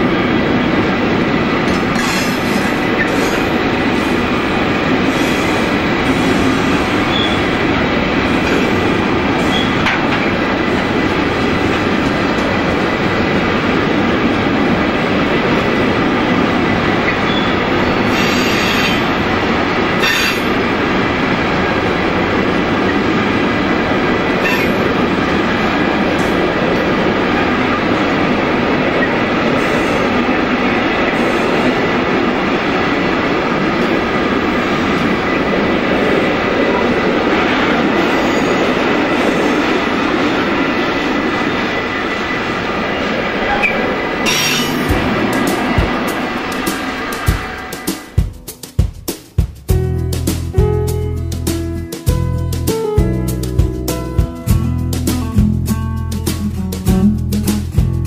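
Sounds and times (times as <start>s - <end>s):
train wheels rumbling on rails: 0.0s - 58.0s
wheels and couplings clacking: 0.7s - 38.0s.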